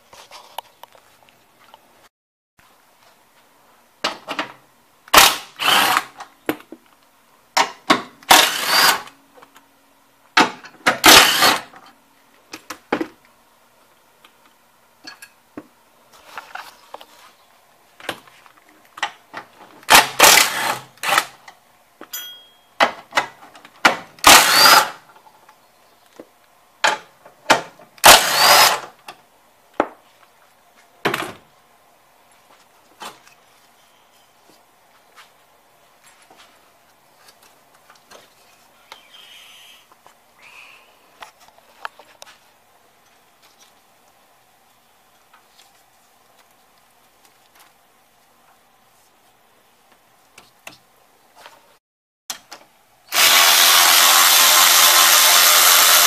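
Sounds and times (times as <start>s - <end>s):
cordless power tool bursts: 5.1s - 6.2s, 8.3s - 9.1s, 11.0s - 11.7s, 19.9s - 21.4s, 24.2s - 25.0s, 28.0s - 28.9s, 53.1s - 56.0s.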